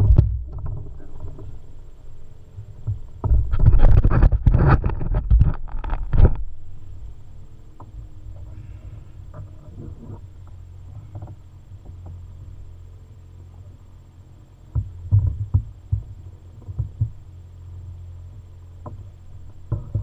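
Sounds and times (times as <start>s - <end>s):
dull low thumps and knocks: 0.0s - 1.7s, 2.6s - 6.6s, 14.7s - 17.3s, 18.7s - 20.0s
low hum: 0.0s - 20.0s.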